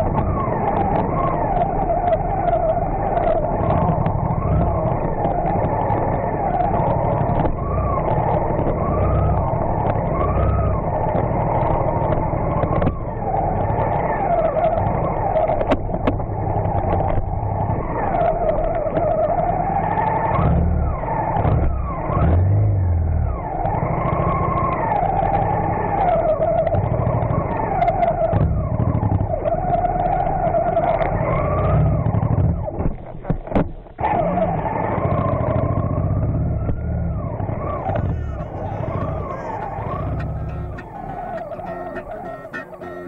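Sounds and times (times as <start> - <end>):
vehicle engine running: 0.0 - 43.0
heavy low bumps: 36.6 - 43.0.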